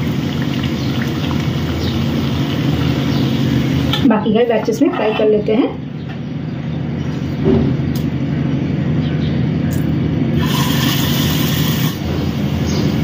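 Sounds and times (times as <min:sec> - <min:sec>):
batter sizzling in hot oil: 0:00.0 - 0:04.0, 0:10.4 - 0:12.0
low machine hum: 0:00.0 - 0:13.0.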